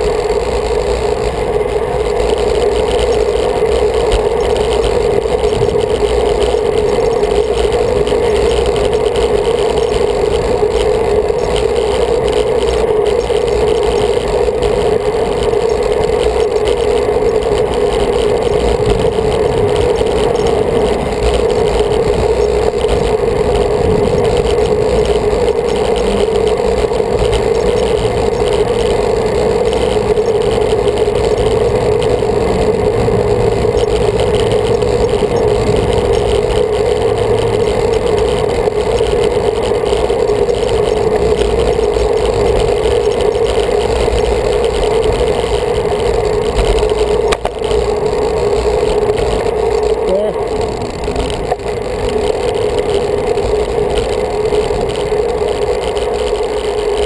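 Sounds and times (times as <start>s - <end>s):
constant droning hum: 0.0s - 57.0s
road noise: 0.0s - 57.0s.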